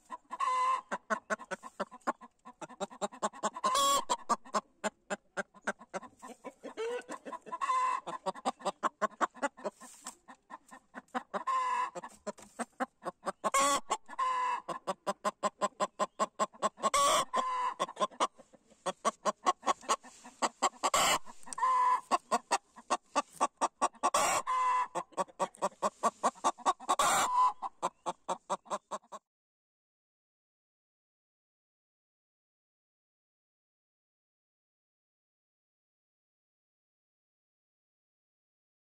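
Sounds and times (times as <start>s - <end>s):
hen clucking and squawking: 0.0s - 29.2s.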